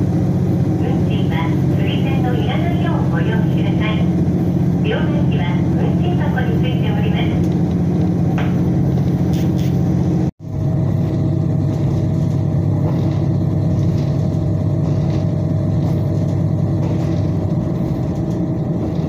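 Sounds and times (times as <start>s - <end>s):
track rumble: 0.0s - 19.0s
train engine drone: 0.0s - 19.0s.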